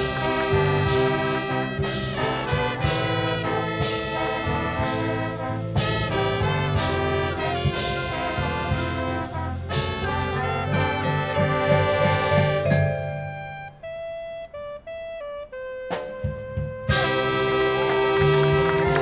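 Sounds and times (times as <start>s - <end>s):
marching band playing: 0.0s - 19.0s.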